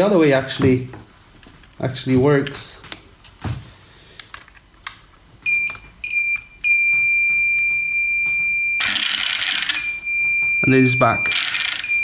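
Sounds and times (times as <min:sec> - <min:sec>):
electric motor high-pitched whine: 0:11.3 - 0:12.0.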